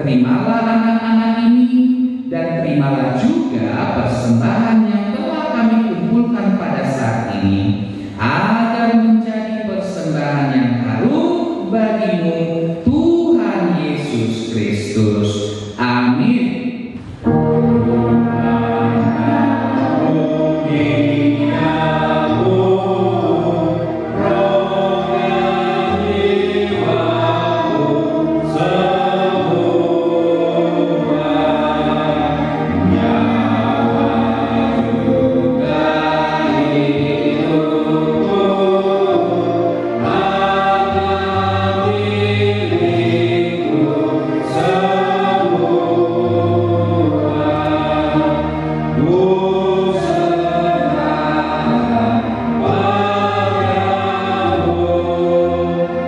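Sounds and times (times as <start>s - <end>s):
group singing a hymn: 16.9s - 56.0s.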